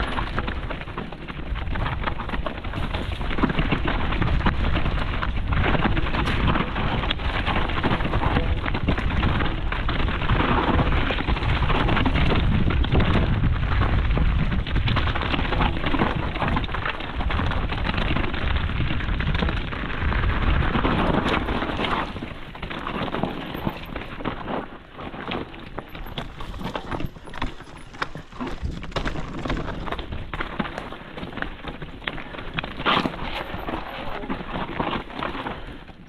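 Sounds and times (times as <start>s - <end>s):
wind on microphone: 0.0s - 24.9s
bike rattling and knocking: 0.0s - 36.0s
tyres on dirt and rock: 0.0s - 36.0s.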